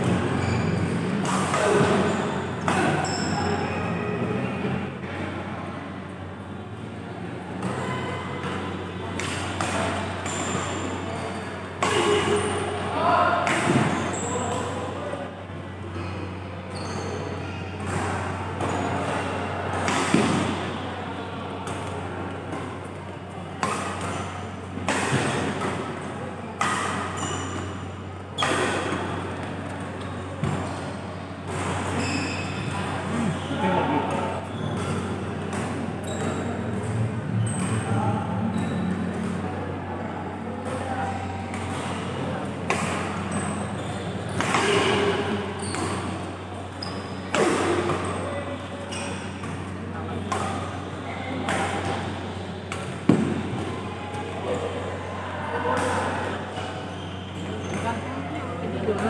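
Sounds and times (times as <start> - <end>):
rackets hitting shuttlecock: 0.9 - 3.4, 8.4 - 12.7, 13.4 - 14.8, 17.8 - 20.8, 23.6 - 33.3, 33.9 - 38.0, 40.6 - 53.9, 55.7 - 56.7.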